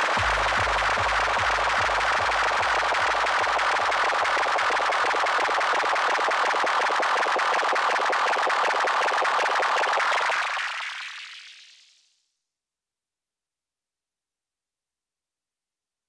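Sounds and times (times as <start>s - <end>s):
techno kick drum thumping: 0.0s - 4.0s.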